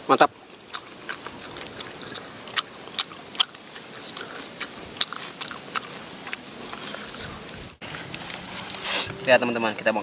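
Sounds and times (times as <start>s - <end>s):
person chewing loudly: 0.4s - 9.3s.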